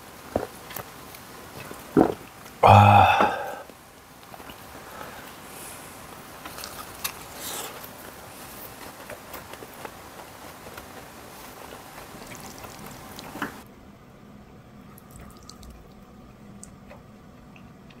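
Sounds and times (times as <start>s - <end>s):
wet eating sounds: 6.4s - 13.6s, 14.9s - 18.0s.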